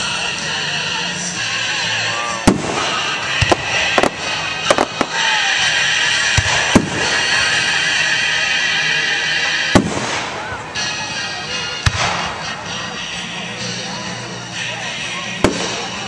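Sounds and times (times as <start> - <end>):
music playing: 0.0 - 16.0
fireworks shells bursting: 2.4 - 8.8.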